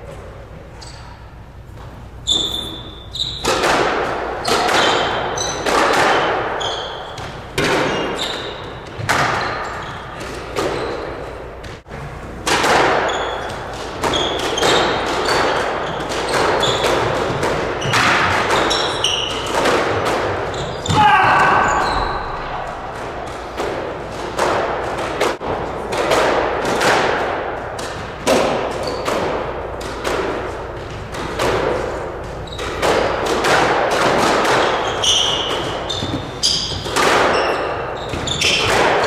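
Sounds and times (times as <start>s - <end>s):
shoes squeaking on wooden floor: 0.7s - 3.6s, 4.4s - 5.8s, 6.6s - 11.8s, 13.1s - 23.6s, 32.0s - 33.2s, 34.5s - 38.8s
squash ball hits echoing: 1.6s - 39.0s.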